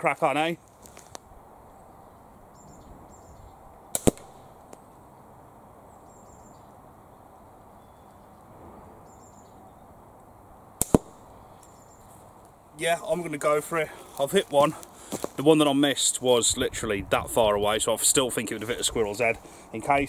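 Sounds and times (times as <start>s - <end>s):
catapult shots sharp double crack: 3.9s - 4.6s, 10.8s - 11.2s.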